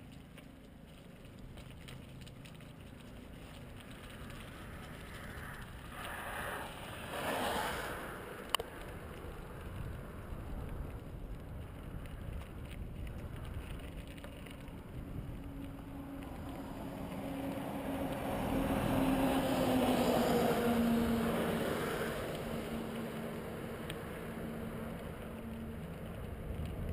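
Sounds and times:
bicycle tyres rolling on gravel: 0.0 - 26.9
motor vehicle passing: 2.9 - 10.3, 14.8 - 26.9.

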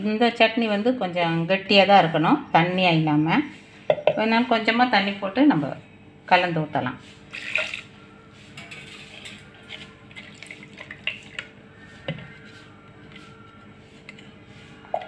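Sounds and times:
kitchenware clinking and tapping: 3.9 - 4.2, 8.6 - 9.6.

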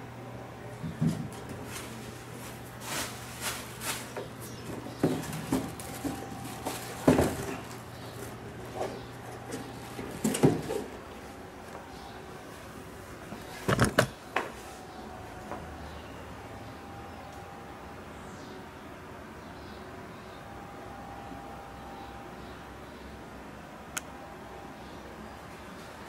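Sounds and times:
faint steady hum: 0.0 - 26.0
plastic wrapping rustling: 1.3 - 8.8.

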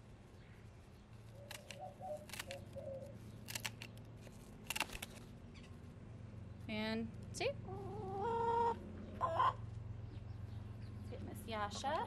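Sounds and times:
scissors snipping feathers: 1.5 - 2.7, 3.5 - 4.0, 4.7 - 5.2.

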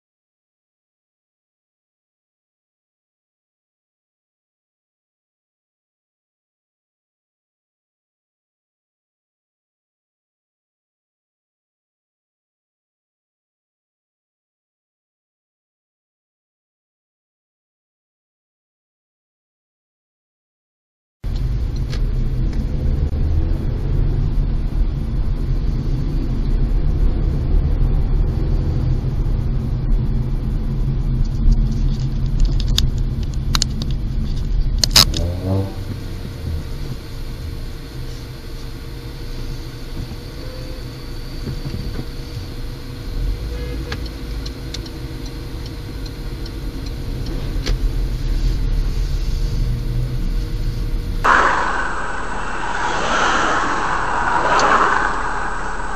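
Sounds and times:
car road and engine rumble: 21.3 - 55.9.

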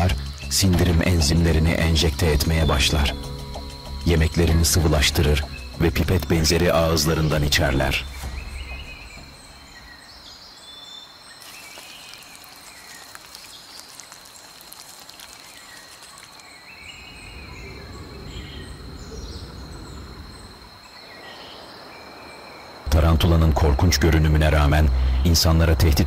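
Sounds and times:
high insect drone: 0.0 - 26.0
short chirping calls: 7.8 - 19.8.

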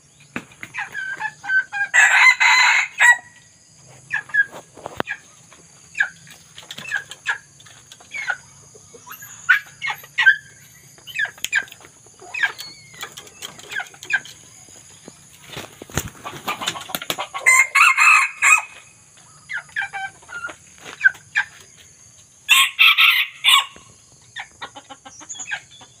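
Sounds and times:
junglefowl crowing: 1.2 - 3.4, 16.5 - 18.9, 22.5 - 23.9
junglefowl clucking: 4.0 - 14.4, 15.6 - 21.7, 22.5 - 26.0.

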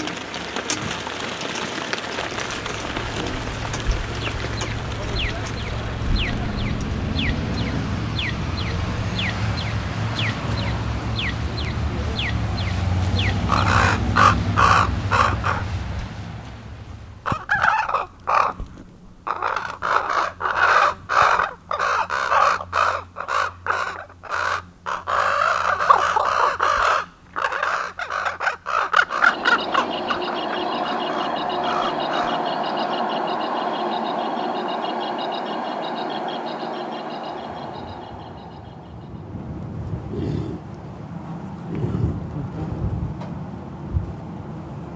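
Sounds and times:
ravens croaking and cawing: 0.0 - 16.5, 17.2 - 39.4
crosswalk signal chirping: 0.0 - 23.4, 28.4 - 40.0
steady sound: 29.2 - 39.6.

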